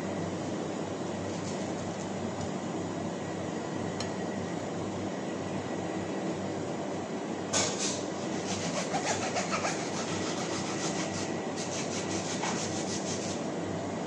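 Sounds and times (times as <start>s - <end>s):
steady machine hum: 0.0s - 14.0s
knife scraping mango skin: 7.6s - 13.4s.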